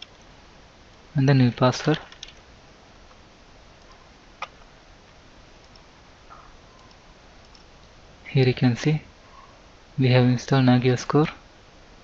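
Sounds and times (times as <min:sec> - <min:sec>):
faint room hiss: 0:00.0 - 0:12.0
computer mouse click: 0:05.6 - 0:05.9, 0:06.8 - 0:07.9.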